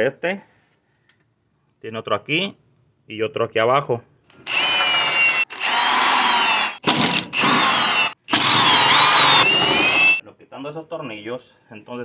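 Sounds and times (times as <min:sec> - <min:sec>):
power drill whining: 0:04.4 - 0:10.2.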